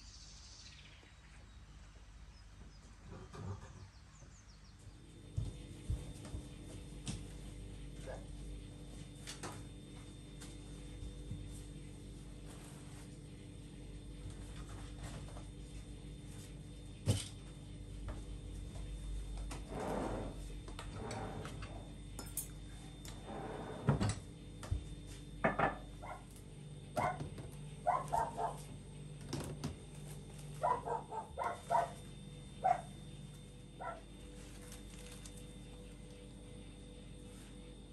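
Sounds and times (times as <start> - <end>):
wicker baskets rustling: 34.2 - 35.6.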